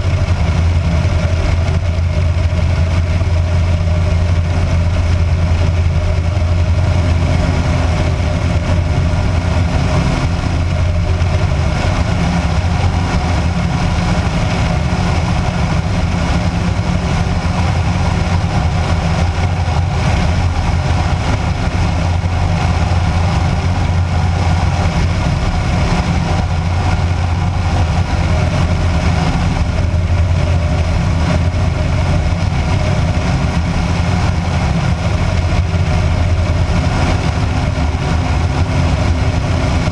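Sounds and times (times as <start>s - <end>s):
light aircraft engine droning: 0.0s - 39.9s.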